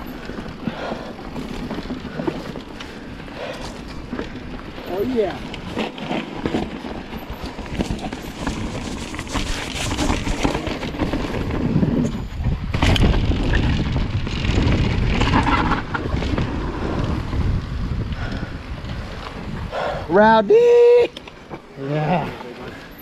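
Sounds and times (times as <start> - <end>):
bike tyre and frame noise: 0.0 - 23.0
wind buffeting microphone: 6.7 - 21.1.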